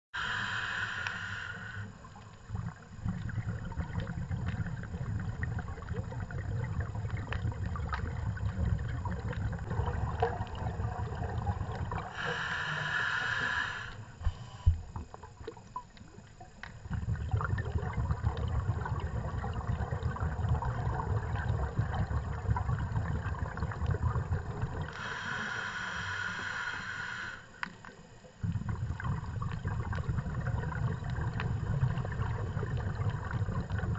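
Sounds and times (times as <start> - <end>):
hissing regulator inhalations: 0.2 - 2.0, 12.1 - 14.8, 24.9 - 27.8
gurgling exhaled bubbles: 0.2 - 13.8, 14.8 - 27.4, 28.3 - 33.9.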